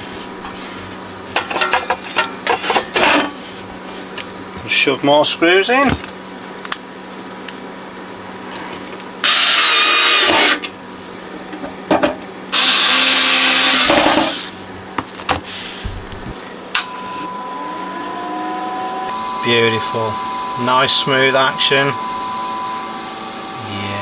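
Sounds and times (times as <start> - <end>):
cordless drill running: 9.2 - 10.6, 12.5 - 14.6.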